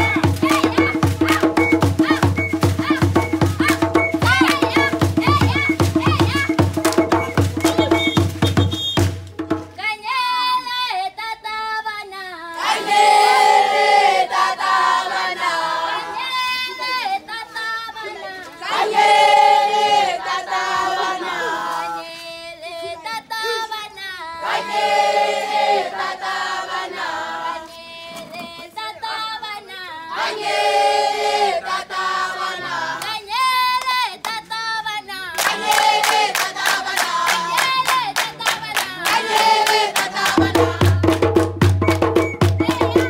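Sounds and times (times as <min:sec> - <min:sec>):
group singing in chorus: 0:00.0 - 0:08.2, 0:12.5 - 0:16.5, 0:18.6 - 0:22.9, 0:24.4 - 0:29.3, 0:30.1 - 0:33.2, 0:35.4 - 0:43.0
rhythmic hand clapping: 0:00.0 - 0:09.4, 0:33.0 - 0:33.2, 0:35.3 - 0:43.0.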